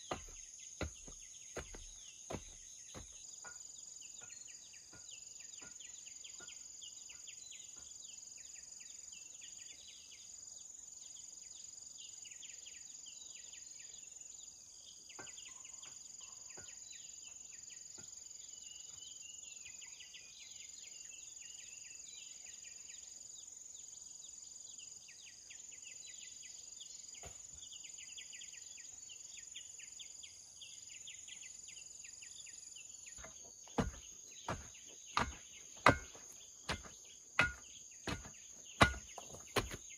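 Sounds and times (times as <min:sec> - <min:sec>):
sharp knocks: 0:00.0 - 0:03.2, 0:33.2 - 0:39.8
insects chirring: 0:00.0 - 0:12.8, 0:23.0 - 0:39.9.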